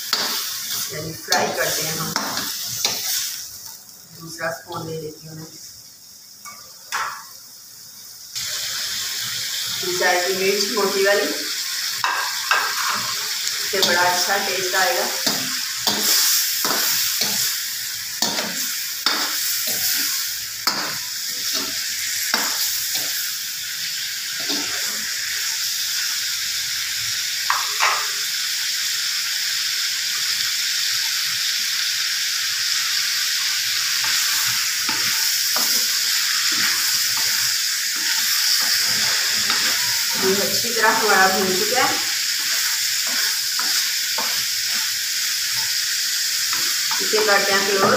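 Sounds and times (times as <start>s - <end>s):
beef sizzling in oil: 0.0s - 47.9s
spoon scraping and knocking pan: 12.0s - 13.2s, 13.8s - 17.6s, 18.2s - 23.2s, 27.5s - 28.1s, 34.0s - 44.9s.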